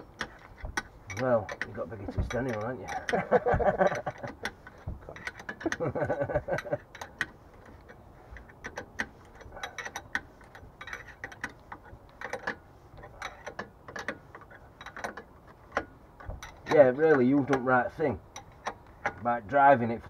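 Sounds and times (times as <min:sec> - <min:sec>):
metal tool clicks: 0:00.0 - 0:06.0.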